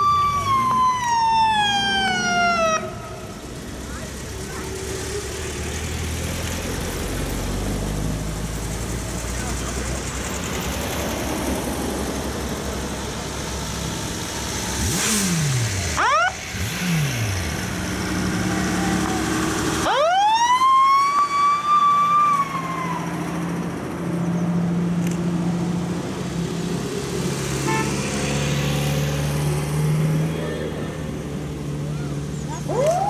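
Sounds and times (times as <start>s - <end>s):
fire engine siren wailing: 0.0s - 3.4s, 16.0s - 16.4s, 18.4s - 23.8s, 32.6s - 33.0s
passing vehicle engines: 0.0s - 33.0s.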